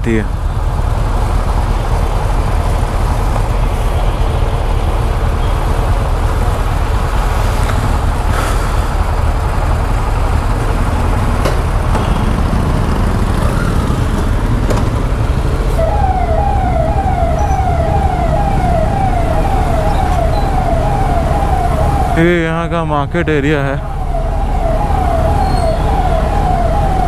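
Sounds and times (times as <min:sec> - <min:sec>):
warbling electronic siren: 0:15.7 - 0:27.0.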